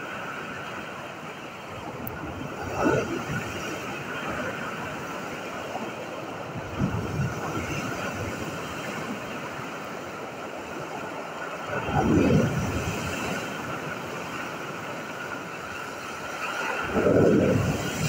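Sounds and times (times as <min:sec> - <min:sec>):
waves breaking on pebble beach: 0:01.7 - 0:18.0.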